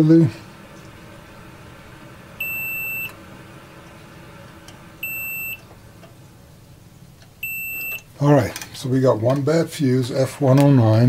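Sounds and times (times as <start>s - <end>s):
continuity tester beeping: 0.0s - 6.1s, 7.4s - 8.2s.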